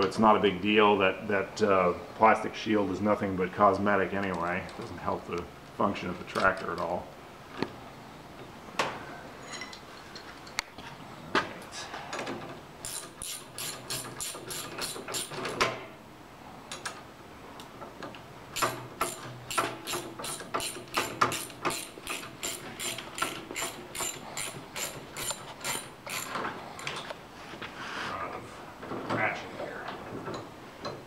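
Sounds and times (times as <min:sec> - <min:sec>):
ratchet wrench clicking: 0:12.8 - 0:15.4, 0:18.6 - 0:26.4.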